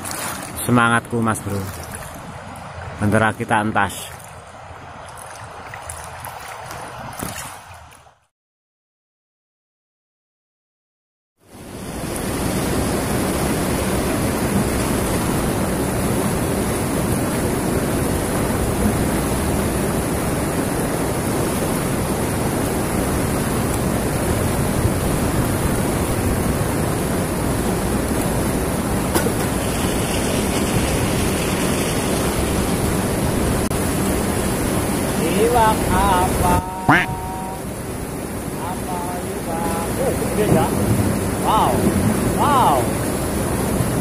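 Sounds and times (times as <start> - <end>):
river rushing over rocks: 11.6 - 44.0.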